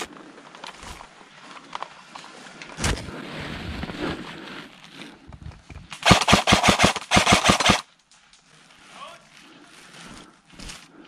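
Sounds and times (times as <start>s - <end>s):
airsoft gun rapid shots: 6.0s - 7.8s.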